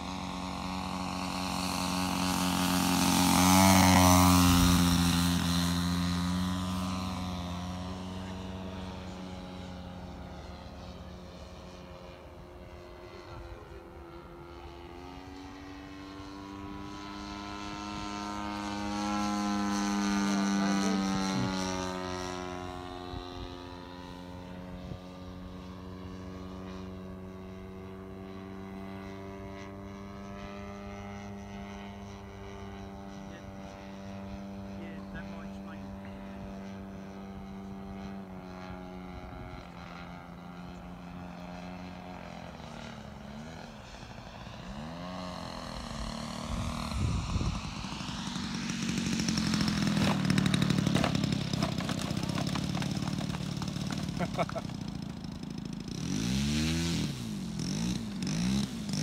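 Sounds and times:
model plane propeller droning: 0.0s - 59.0s.

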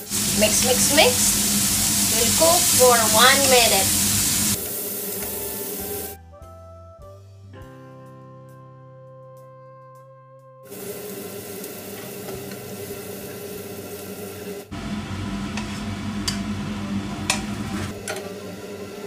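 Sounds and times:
vegetables sizzling in a frying pan: 0.0s - 6.2s, 10.7s - 19.0s.

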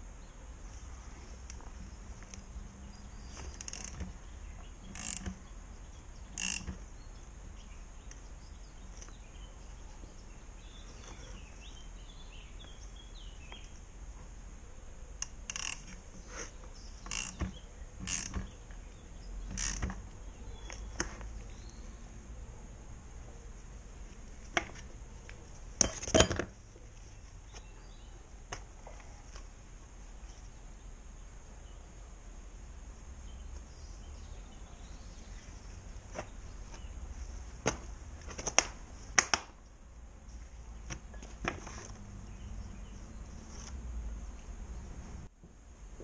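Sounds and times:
metal clinks and knocks: 25.8s - 26.6s.

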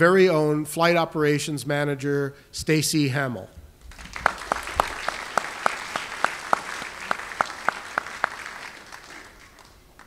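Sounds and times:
audience applauding: 3.9s - 10.0s
sharp even hand claps: 3.9s - 10.0s.

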